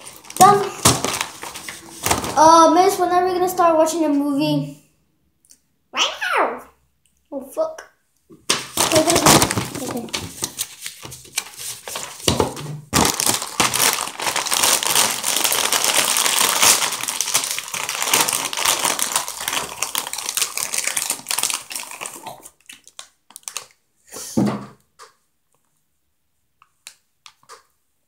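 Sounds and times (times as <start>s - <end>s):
chip bag crinkling: 0.0s - 2.4s, 8.7s - 23.8s.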